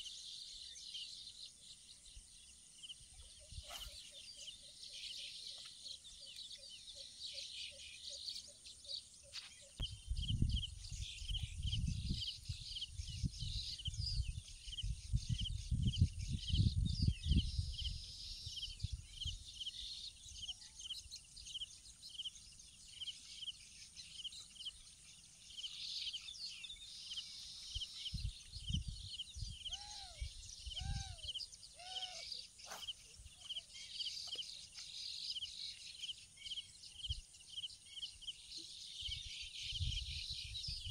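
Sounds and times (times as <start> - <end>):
insects chirping: 0.0 - 13.9, 17.8 - 40.7
bird calls: 0.0 - 15.8, 16.6 - 40.9
low rumbling on microphone: 9.8 - 18.1.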